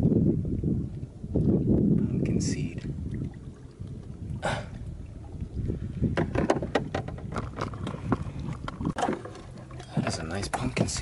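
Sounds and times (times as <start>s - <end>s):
gear knocking in canoe: 6.1s - 11.0s.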